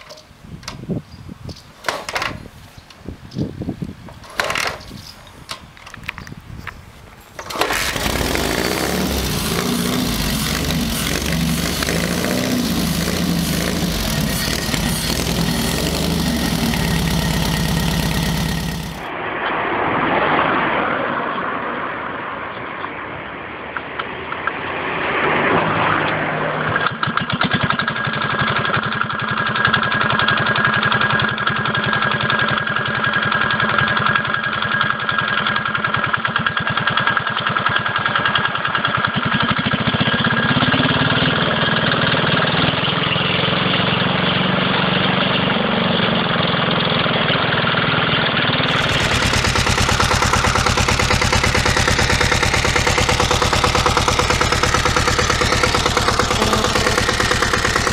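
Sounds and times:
diesel motorcycle idling: 7.4s - 19.1s, 48.3s - 57.9s
small diesel engine knocking: 7.4s - 19.1s, 27.3s - 42.4s, 48.6s - 57.9s.

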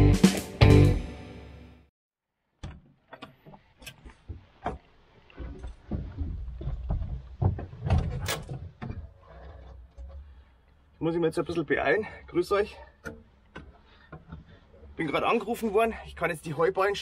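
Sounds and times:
clicks knocks and rattles: 2.6s - 10.2s.

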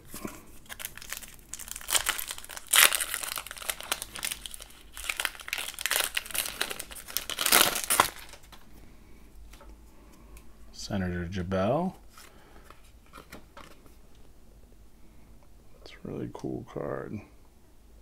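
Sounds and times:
foil wrapper tearing and crinkling: 0.6s - 8.6s.

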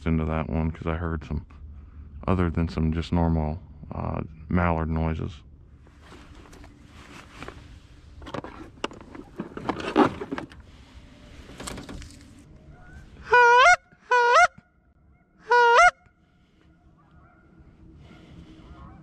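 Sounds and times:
rustling: 5.8s - 13.2s
goose call honks: 12.8s - 14.7s, 15.4s - 16.1s.

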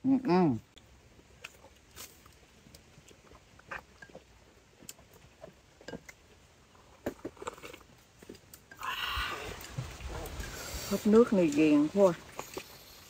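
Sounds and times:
people chewing: 0.8s - 13.0s
person sipping broth: 8.6s - 11.0s.

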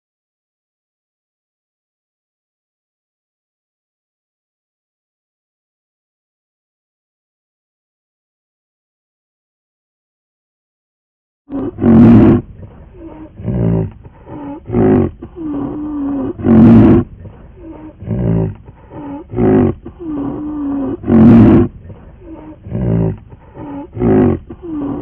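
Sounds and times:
large animal roaring: 11.5s - 25.0s.

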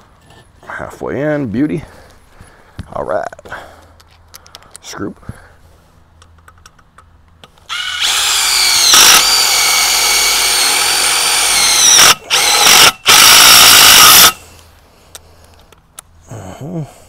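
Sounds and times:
cordless drill driving screws into metal: 7.7s - 14.4s.

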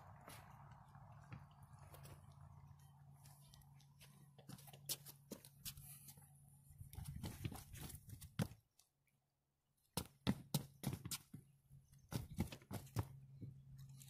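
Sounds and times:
low steady hum: 0.0s - 9.8s
shuffling steps on a deck: 3.2s - 8.6s.

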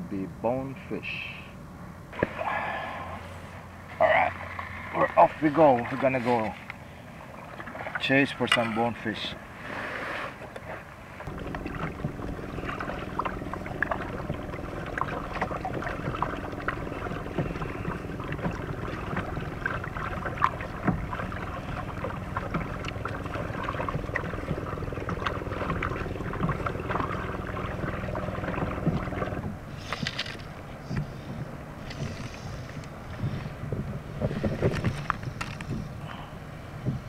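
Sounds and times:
paddle blades splashing: 2.1s - 37.0s
steady low hum: 11.1s - 37.0s
small knocks and drips: 11.2s - 30.0s
water running along plastic hull: 11.2s - 30.1s.

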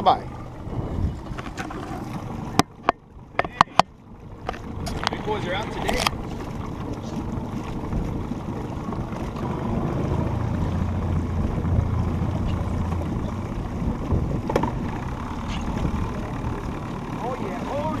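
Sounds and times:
water lapping against boat hull: 0.0s - 18.0s
wind on microphone: 0.4s - 2.5s, 4.3s - 16.6s.

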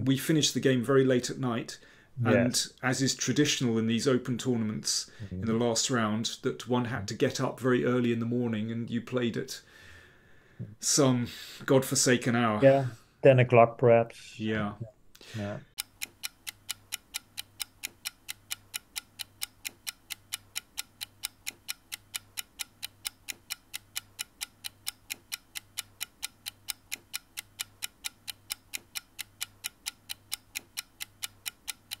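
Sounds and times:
clock ticking: 15.6s - 32.0s.

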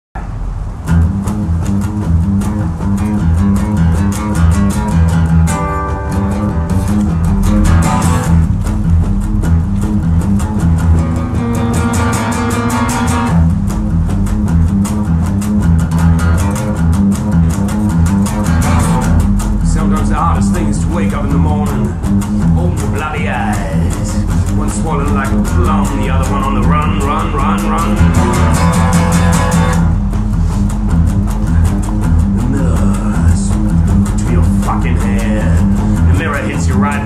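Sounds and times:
acoustic guitar strumming: 0.2s - 37.0s.

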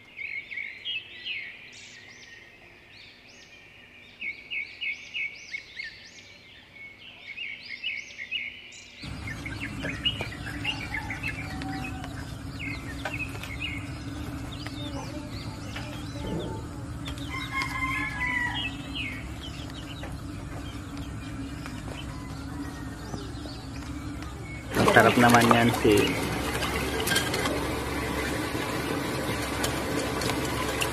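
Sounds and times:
small birds chirping: 0.0s - 30.9s
rooster crowing: 9.0s - 14.8s, 16.2s - 28.2s
chickens clucking: 9.0s - 30.9s
steady outdoor hum: 9.0s - 30.9s.

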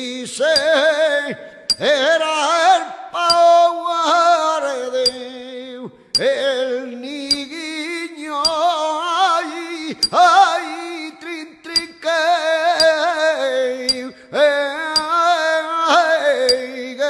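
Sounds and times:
hammer striking anvil: 1.7s - 1.9s.

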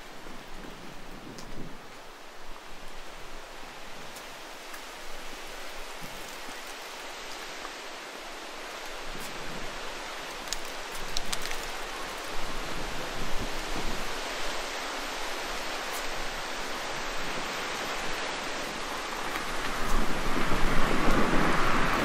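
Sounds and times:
outdoor ambient hiss: 0.0s - 22.0s
light ticks: 1.4s - 1.6s.

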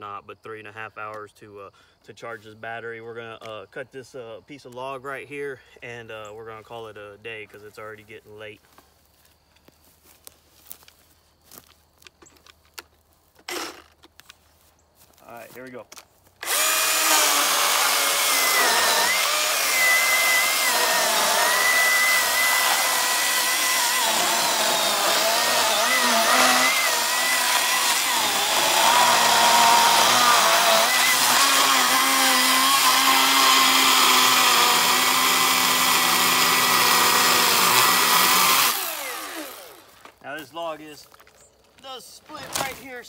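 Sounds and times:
electric chainsaw cutting log: 13.4s - 14.1s, 16.4s - 40.1s.

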